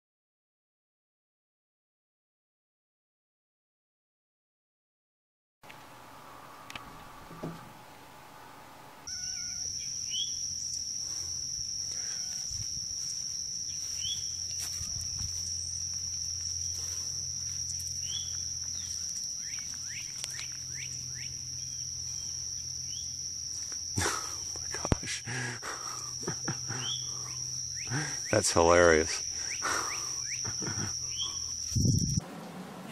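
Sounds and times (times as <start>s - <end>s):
high-pitched insect drone: 9.0s - 32.2s.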